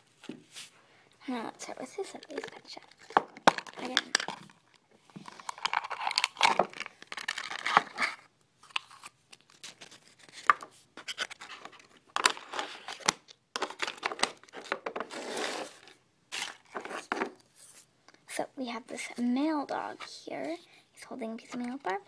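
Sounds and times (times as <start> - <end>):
packaging crinkling and tearing: 2.0 - 17.4.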